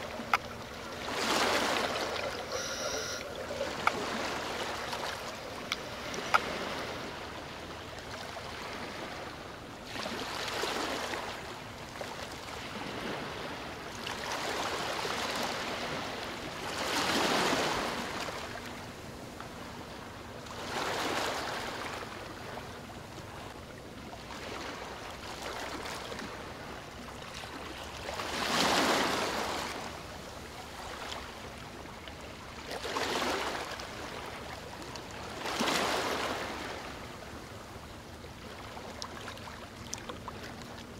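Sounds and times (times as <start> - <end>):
rushing water surges: 0.0 - 7.4.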